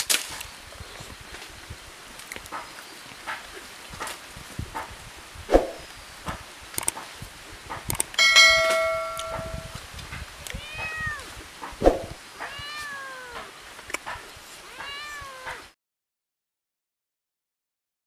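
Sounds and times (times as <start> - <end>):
sharp click: 6.7 - 7.1, 7.7 - 9.7
bell ding: 8.2 - 9.8
cat meowing: 10.4 - 11.4, 12.4 - 13.5, 14.6 - 15.7.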